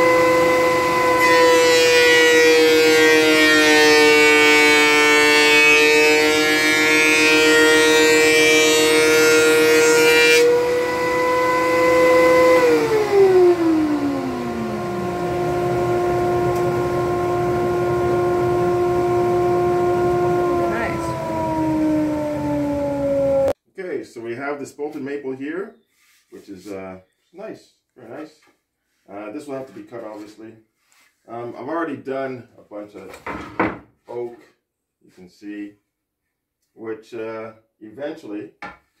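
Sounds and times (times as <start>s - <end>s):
dust collector humming: 0.0s - 23.6s
planer cutting board: 0.0s - 23.6s
planer winding down: 0.0s - 23.6s
thickness planer whining: 0.0s - 23.6s.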